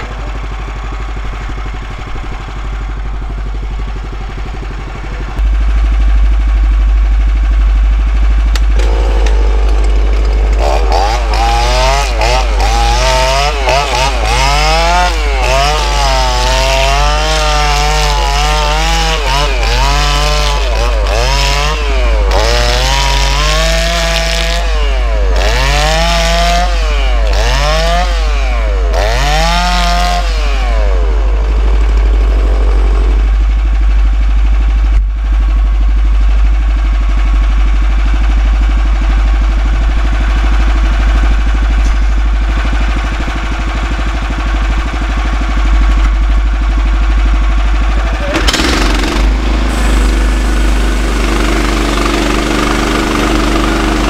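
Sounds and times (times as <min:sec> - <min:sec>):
gas engine idling: 0:00.0 - 0:23.8, 0:30.8 - 0:54.0
chainsaw cutting log: 0:10.2 - 0:33.2, 0:48.1 - 0:54.0.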